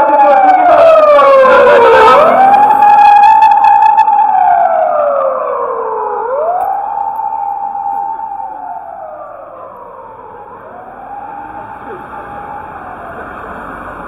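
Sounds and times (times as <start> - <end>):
emergency siren wailing: 0.0 - 14.0.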